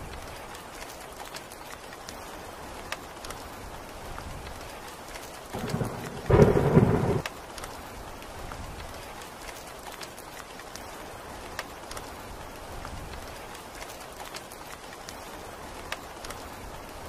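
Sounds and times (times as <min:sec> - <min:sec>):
steady rain falling: 0:00.0 - 0:17.0
thunderclap: 0:05.5 - 0:07.3.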